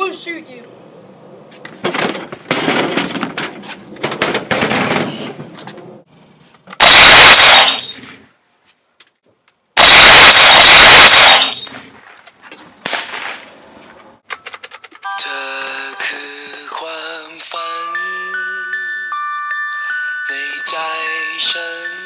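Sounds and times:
rapid gunfire bursts: 6.8s - 7.8s, 9.8s - 11.5s.

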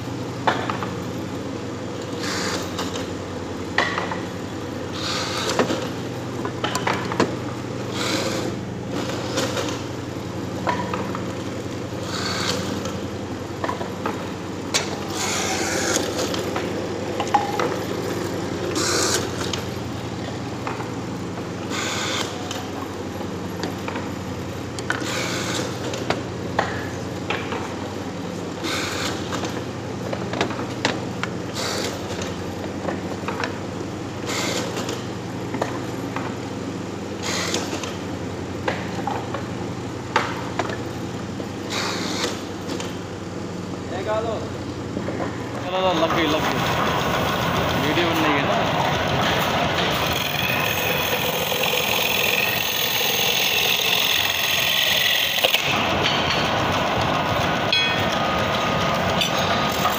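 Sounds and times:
machine motor humming: 11.6s - 21.0s, 45.4s - 59.9s.

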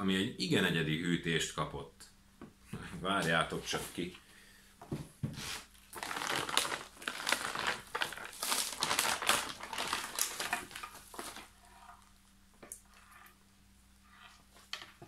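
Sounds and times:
plastic wrap crinkling: 5.5s - 13.3s.

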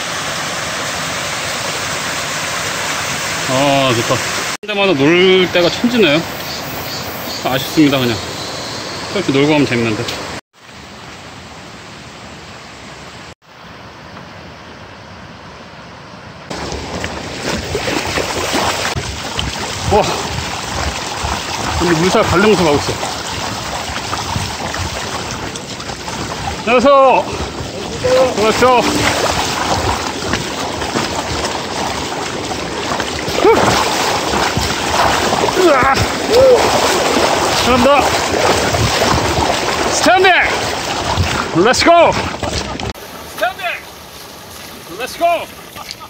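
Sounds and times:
rushing stream water: 0.0s - 14.9s, 16.5s - 46.0s.

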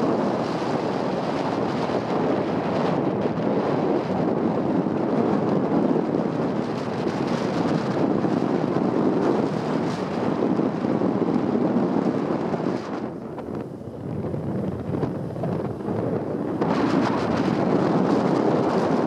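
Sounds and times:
wind rush over microphone: 0.0s - 19.0s
moped engine and road noise: 5.8s - 19.0s.

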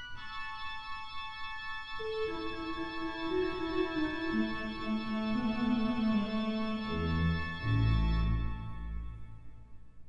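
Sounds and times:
church organ chord: 0.0s - 10.0s.

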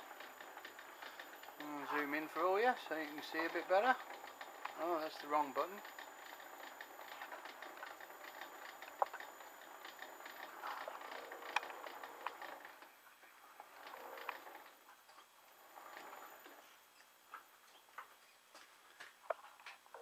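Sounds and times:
lathe crackling and ticking: 0.0s - 16.7s
sharp clicks: 6.0s - 12.5s.

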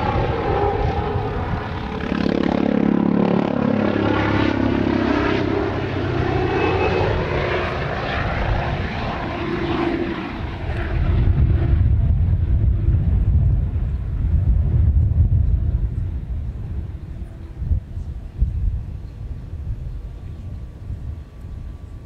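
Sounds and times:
helicopter flying past: 0.0s - 22.0s
strong low rumble: 10.6s - 21.8s.

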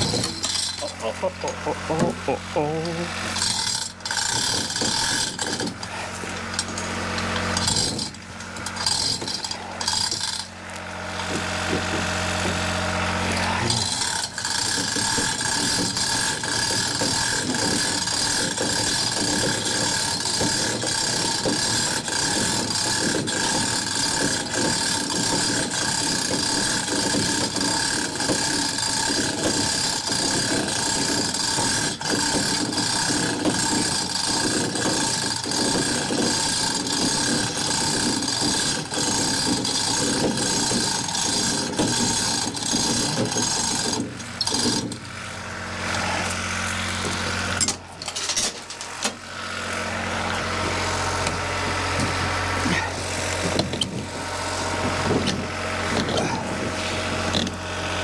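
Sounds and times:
chain rattling: 0.0s - 1.6s.

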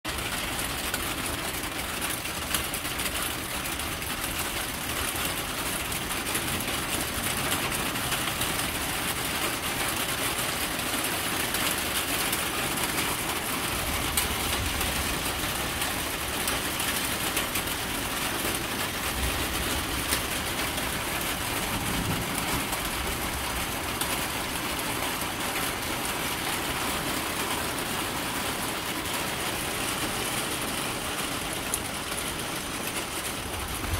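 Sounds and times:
distant thunder rumbles: 19.0s - 24.8s.

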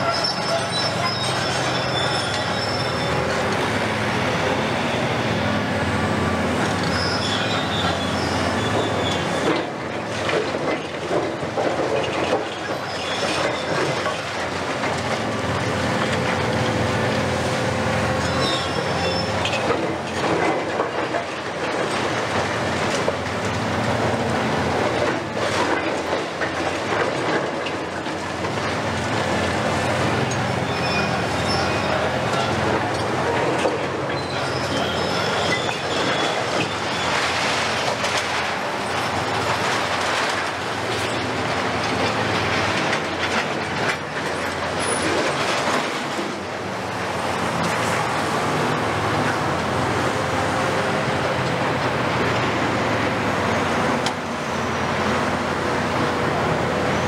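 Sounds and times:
high-pitched squeals: 0.0s - 3.3s, 34.1s - 37.4s
diesel engines and hydraulics: 0.0s - 57.0s.

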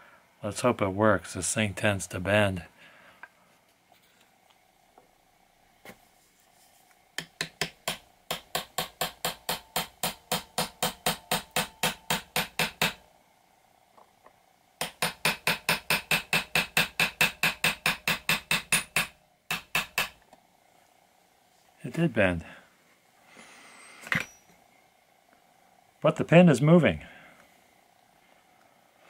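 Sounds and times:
hammer tapping metal punch: 7.2s - 13.0s, 14.8s - 20.2s.

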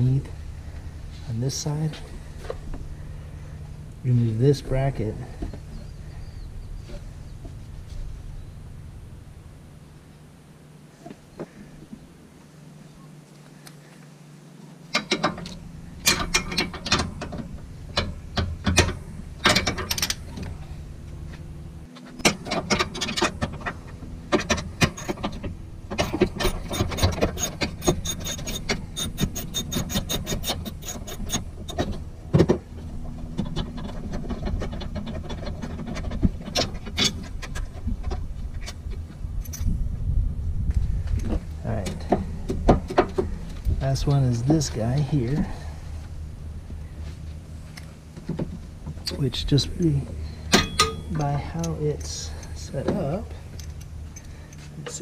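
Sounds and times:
tool clinking against metal: 50.5s - 52.6s.

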